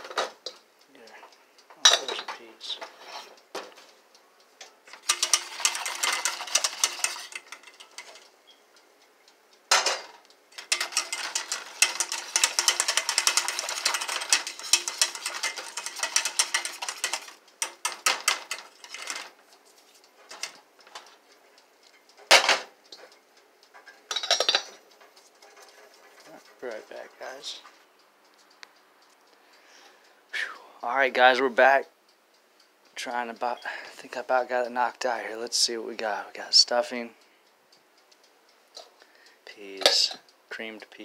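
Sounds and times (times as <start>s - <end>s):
whisk clinking in metal saucepan: 4.9s - 8.2s, 10.6s - 19.3s.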